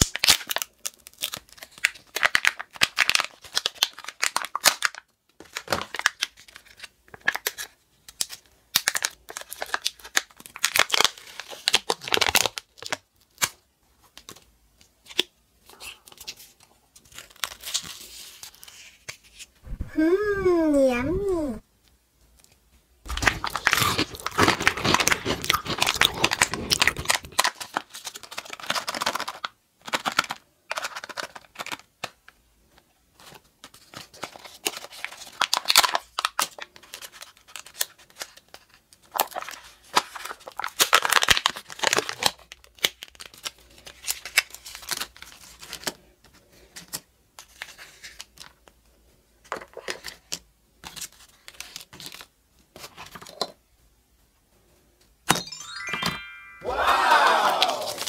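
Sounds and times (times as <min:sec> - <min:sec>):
foil and plastic wrapping crinkling: 0:00.0 - 0:13.6, 0:16.1 - 0:19.0, 0:23.1 - 0:32.2, 0:33.2 - 0:46.0.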